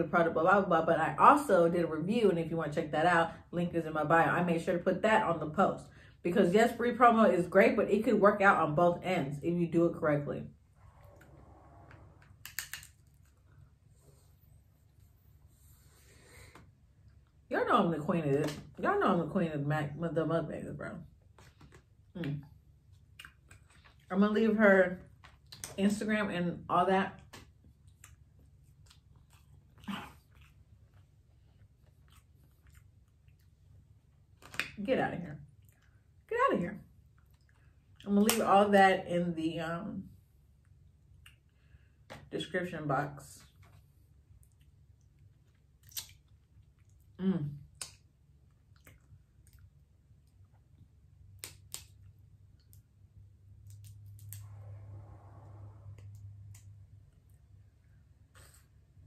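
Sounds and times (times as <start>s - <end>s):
low steady hum: 0.0s - 59.0s
clicks and rustles of eating: 21.2s - 24.1s, 25.1s - 25.8s, 27.2s - 34.8s, 43.4s - 52.9s
crab shell cracking by hand: 51.3s - 52.0s.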